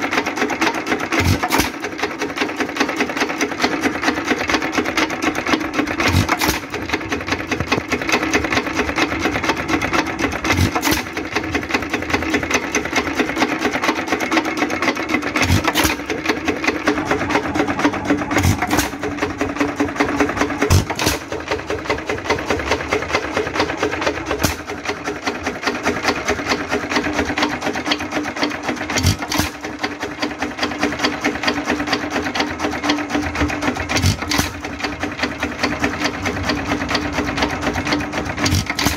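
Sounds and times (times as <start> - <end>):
stationary engine clattering: 0.0 - 38.9
engine firing knocks: 20.4 - 25.0.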